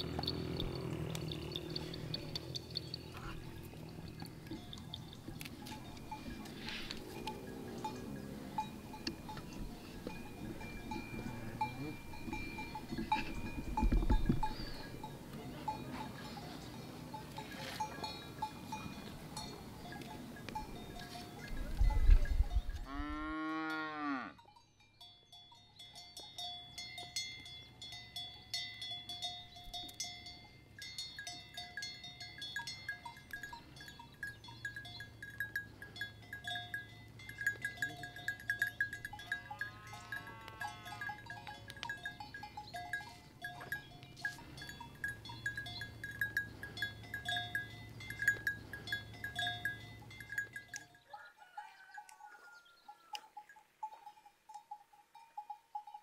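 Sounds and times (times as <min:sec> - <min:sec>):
farm animal calling: 0:00.0 - 0:22.2
livestock bells clinking: 0:00.0 - 0:56.0.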